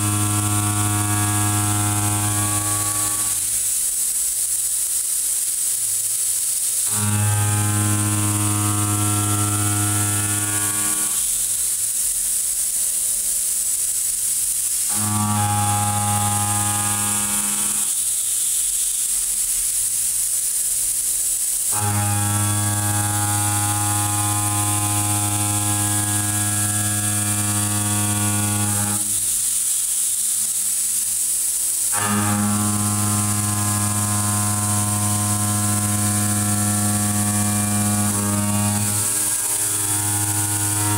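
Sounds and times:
milling machine cutting steel: 0:00.0 - 0:03.8, 0:06.9 - 0:12.0, 0:14.0 - 0:18.6, 0:21.7 - 0:40.9
steady high hiss: 0:00.0 - 0:40.9.

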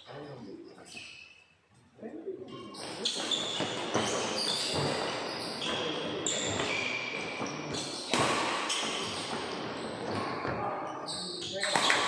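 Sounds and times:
sports shoes squeaking: 0:00.0 - 0:01.6, 0:02.5 - 0:12.0.

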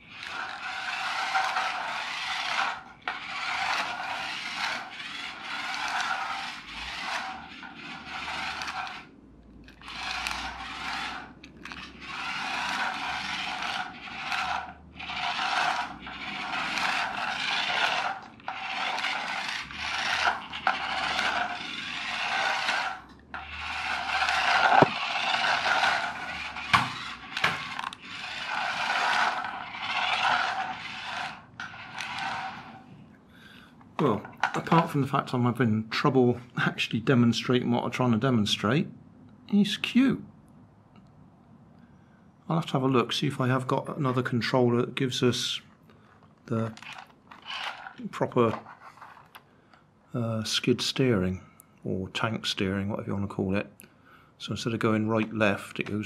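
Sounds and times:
toy car motors whirring: 0:00.0 - 0:33.0, 0:46.3 - 0:49.4
toy car wheels scraping floor: 0:00.0 - 0:36.5, 0:45.2 - 0:49.8.

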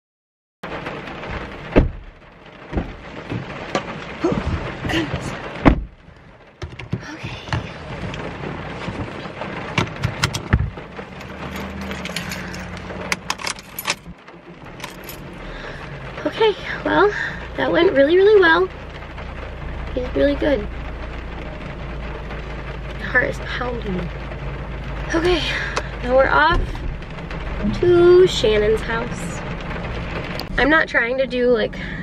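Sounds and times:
car door thumps: 0:01.7 - 0:02.1, 0:02.7 - 0:06.0, 0:06.6 - 0:08.2, 0:08.8 - 0:10.8
keys jangling: 0:11.4 - 0:14.1, 0:14.8 - 0:15.3
seatbelt fastened: 0:11.5 - 0:14.1.

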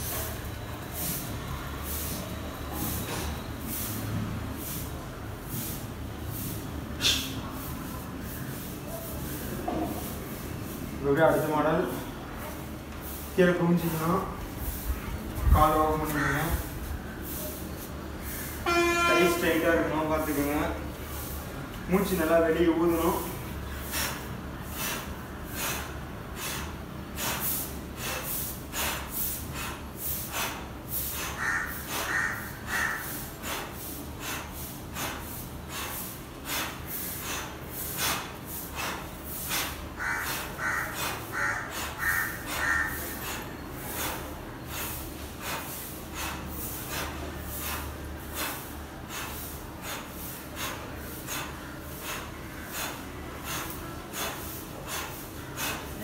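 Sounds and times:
man breathing out forcefully: 0:23.8 - 0:32.1, 0:33.0 - 0:56.0
bird calling: 0:40.0 - 0:43.4.

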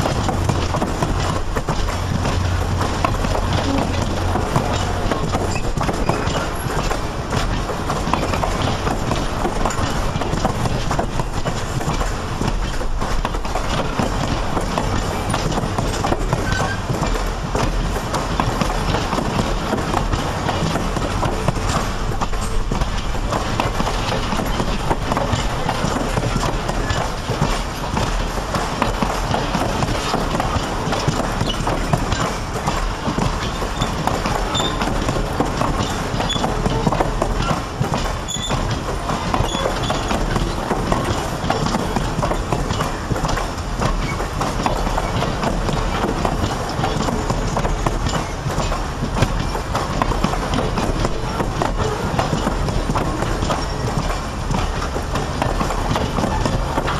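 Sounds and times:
train wheels clacking over rails: 0:00.0 - 0:56.9.

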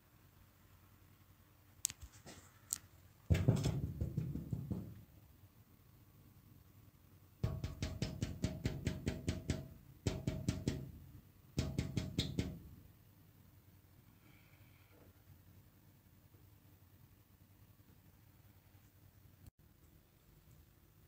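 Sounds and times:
fast even drum beats: 0:03.3 - 0:05.0.

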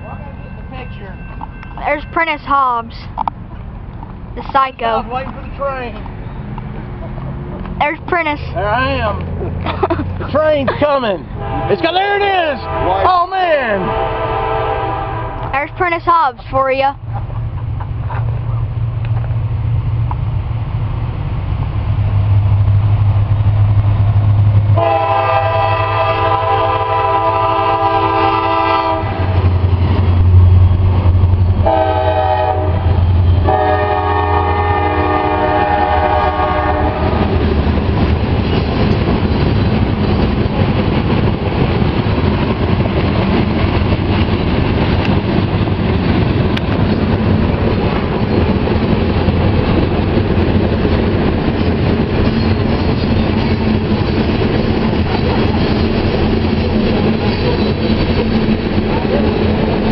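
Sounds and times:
diesel locomotives rumbling: 0:00.0 - 0:59.9
locomotive horn blasts: 0:11.3 - 0:15.5, 0:24.8 - 0:29.5, 0:31.6 - 0:37.3
train wheels clickety-clack: 0:35.0 - 0:59.9.

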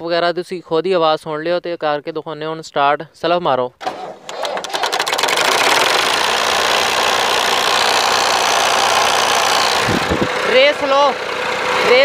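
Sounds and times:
electric starter cranking: 0:03.8 - 0:12.0
diesel engine idling: 0:05.0 - 0:12.0.

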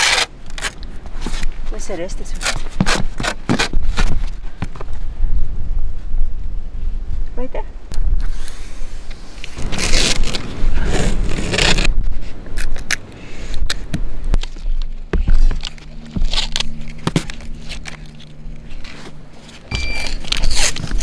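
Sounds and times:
tape peeling and ripping: 0:00.0 - 0:01.6, 0:02.3 - 0:04.4, 0:08.2 - 0:21.0
low steady hum: 0:03.9 - 0:21.0.

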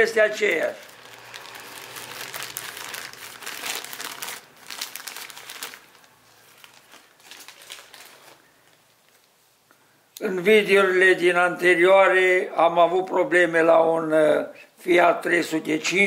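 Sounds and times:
plastic wrapping crinkling: 0:00.0 - 0:09.4.

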